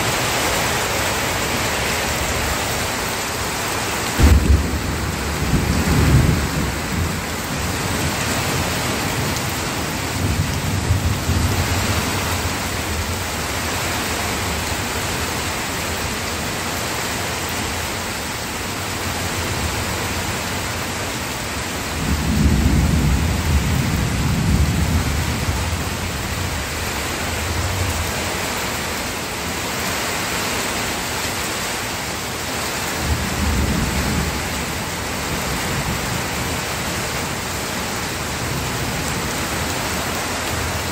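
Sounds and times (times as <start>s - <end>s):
steady rain: 0.0s - 40.9s
thunder rumbling: 4.1s - 13.0s.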